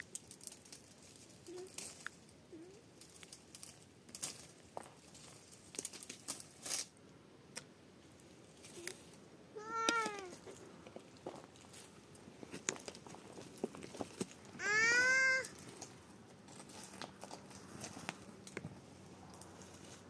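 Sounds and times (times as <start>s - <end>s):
cat meowing: 9.6s - 10.4s, 14.6s - 15.5s.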